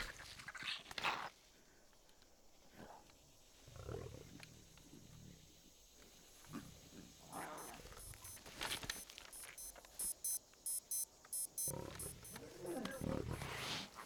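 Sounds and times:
wristwatch alarm beeping: 7.6s - 13.0s
lion growling low: 11.7s - 13.9s.

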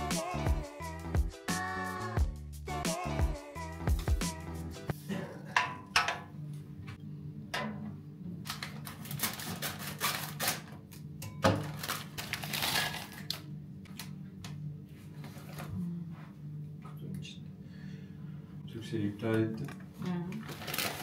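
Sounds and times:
scissors cutting plastic: 8.5s - 11.0s, 11.6s - 13.4s
plastic bag crinkling: 8.8s - 10.7s, 11.6s - 13.4s, 20.4s - 21.0s.

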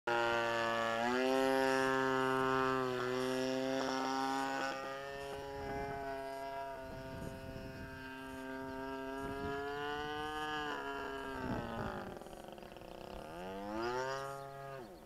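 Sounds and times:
engine and propeller droning: 0.1s - 15.0s.

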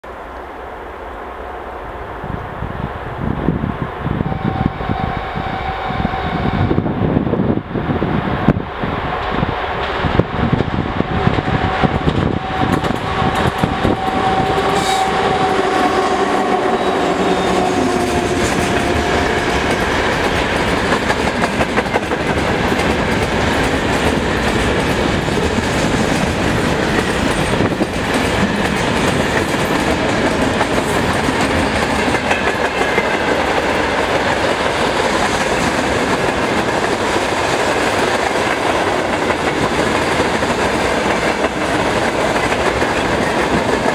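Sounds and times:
train wheels clattering over rail joints: 17.9s - 43.9s.

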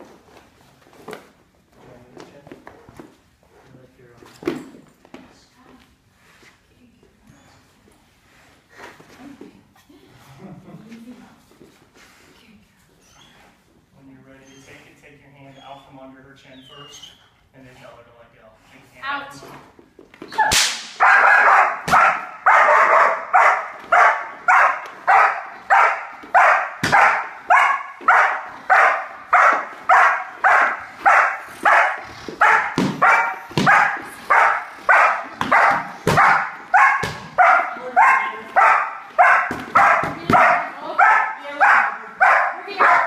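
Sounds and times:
dog barking: 21.0s - 43.0s.

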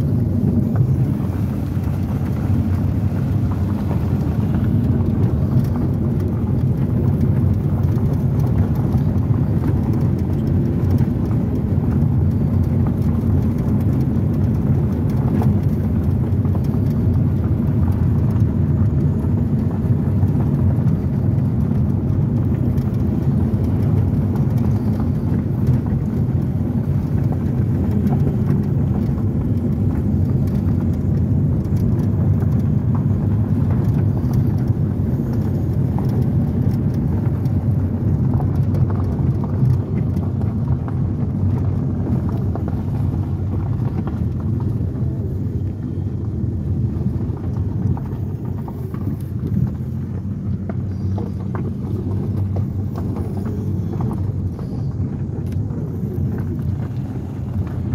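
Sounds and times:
car engine and tyres rumbling: 0.0s - 57.9s
gravel ticking under tyres: 0.0s - 57.9s.

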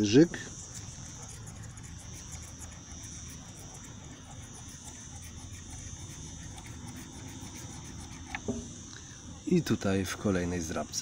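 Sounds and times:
steady high buzz: 0.0s - 11.0s
coin scraping a lottery ticket: 0.6s - 8.3s.

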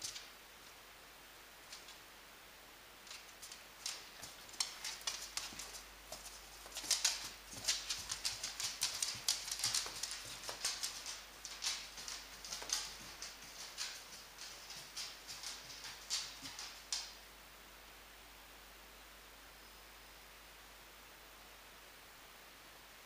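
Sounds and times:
dog claws clicking on wooden floor: 3.0s - 17.2s.

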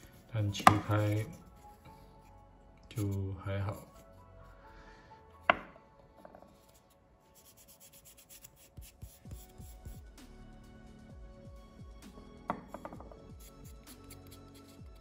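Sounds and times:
wood knocking on hard surface: 5.5s - 6.5s, 12.5s - 13.2s.

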